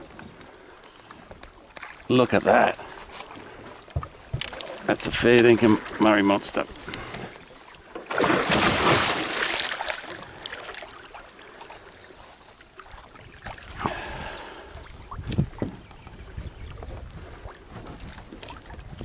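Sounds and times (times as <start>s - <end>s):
water sloshing: 0.0s - 19.0s
fish splashing at surface: 8.0s - 11.2s.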